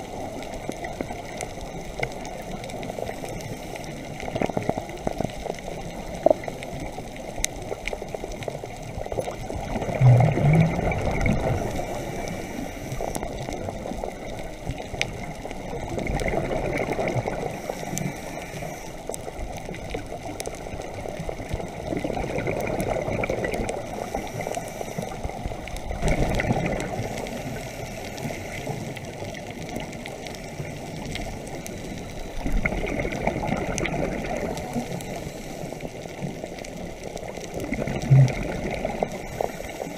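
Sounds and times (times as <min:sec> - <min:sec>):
faint clicks: 0:00.0 - 0:39.9
watery murmur: 0:00.0 - 0:39.9
exhaled bubbles burbling: 0:04.0 - 0:18.2, 0:19.1 - 0:24.5, 0:25.1 - 0:35.2, 0:36.2 - 0:39.8
diver breathing through regulator: 0:11.0 - 0:13.4, 0:17.4 - 0:19.1, 0:24.0 - 0:25.2, 0:34.7 - 0:36.1, 0:39.0 - 0:39.9.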